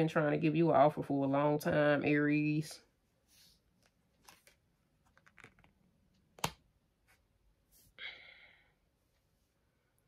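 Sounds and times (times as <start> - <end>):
cards rustling and clicking: 3.7 - 6.7.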